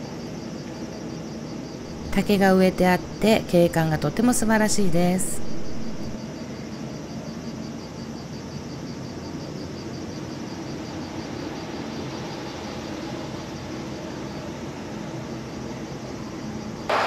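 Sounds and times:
faint high pulsing: 0:01.9 - 0:06.2
faint low hum: 0:01.9 - 0:06.2
steady rushing noise: 0:05.1 - 0:06.2.

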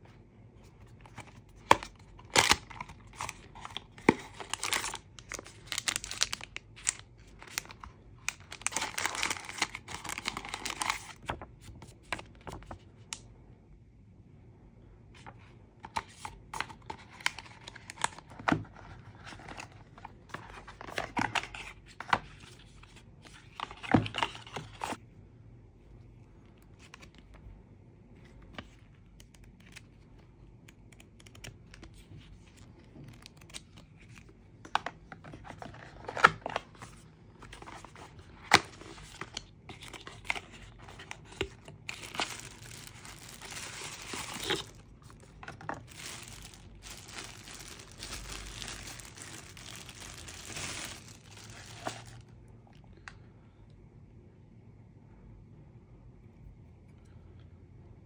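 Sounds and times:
packaging tearing and crinkling: 0:01.7 - 0:11.4, 0:37.6 - 0:52.2.

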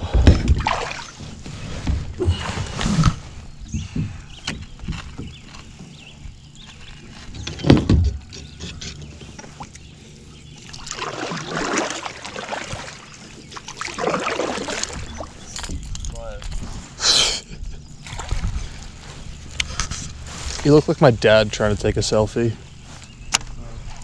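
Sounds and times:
paddle strokes in water: 0:10.6 - 0:15.5.

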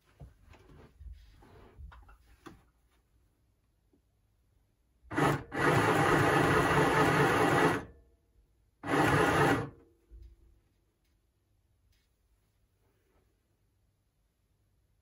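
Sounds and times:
sewing machine stitching: 0:05.1 - 0:07.9, 0:08.8 - 0:09.8.

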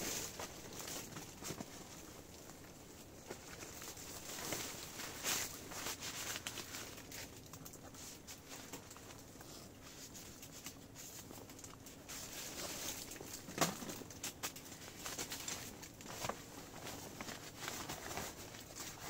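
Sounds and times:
camping gear being handled: 0:00.0 - 0:19.0
small irregular clicks: 0:06.3 - 0:19.0
fabric rustling: 0:14.8 - 0:19.0.

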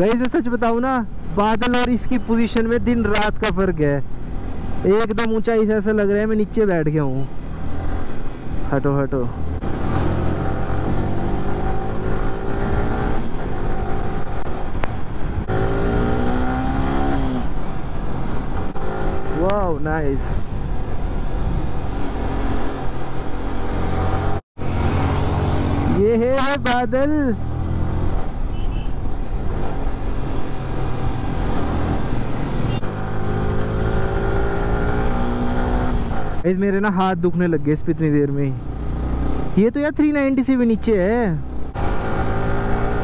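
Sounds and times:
motorcycle engine revving: 0:09.4 - 0:19.7, 0:21.3 - 0:28.5, 0:29.4 - 0:36.4, 0:38.6 - 0:39.6, 0:41.3 - 0:43.0
wind rush: 0:12.6 - 0:23.4.

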